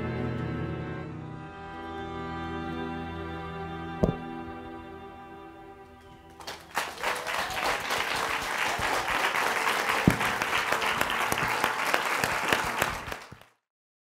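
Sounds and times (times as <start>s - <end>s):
loud thump: 4.0s - 4.5s
audience applauding: 6.0s - 13.6s.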